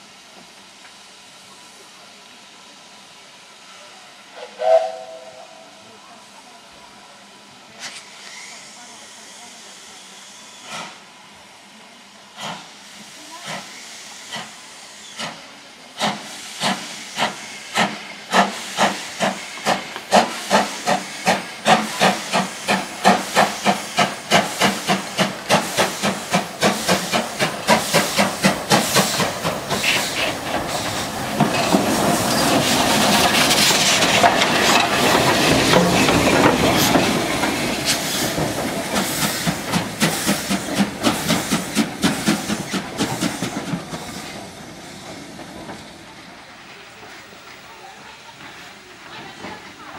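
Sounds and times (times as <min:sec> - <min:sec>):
steam hissing: 0:00.0 - 0:49.9
steam locomotive exhaust beats: 0:04.3 - 0:06.0, 0:12.3 - 0:45.9.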